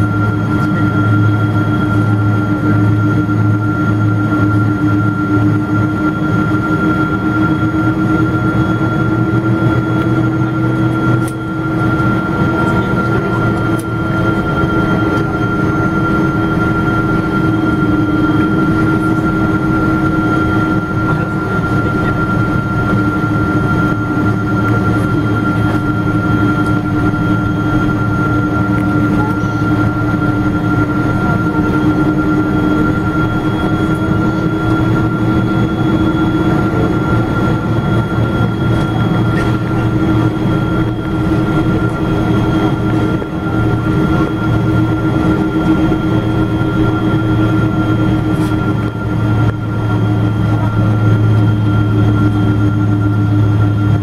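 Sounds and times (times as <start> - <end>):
constant high whine: 0.0 - 54.0
jet engines humming in cabin: 0.0 - 54.0.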